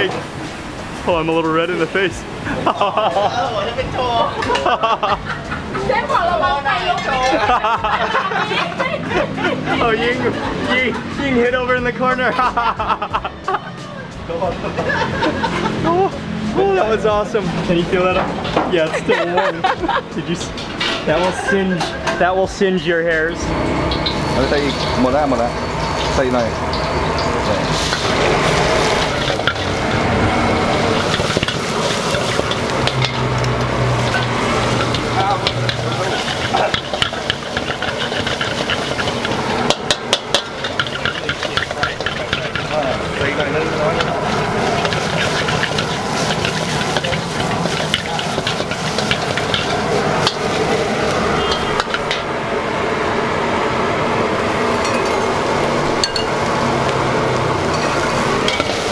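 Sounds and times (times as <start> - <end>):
gas burner roar: 0.0 - 13.2, 14.3 - 58.9
metal spatula scraping a wok: 23.4 - 52.3, 57.6 - 58.9
rice sizzling in a wok: 23.5 - 58.9
spatula clanking against wok: 26.7 - 52.3, 57.6 - 58.9.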